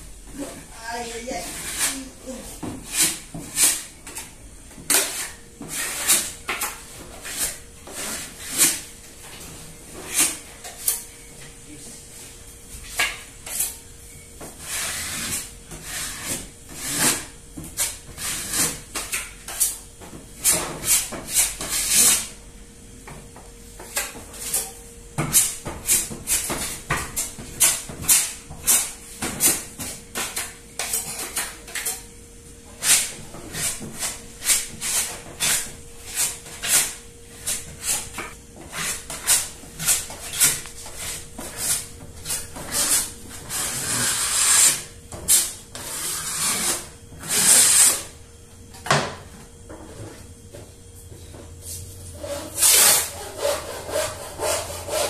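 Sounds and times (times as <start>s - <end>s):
hand tools scraping: 1.0s - 4.3s, 4.9s - 8.9s, 32.8s - 48.1s, 51.7s - 55.0s.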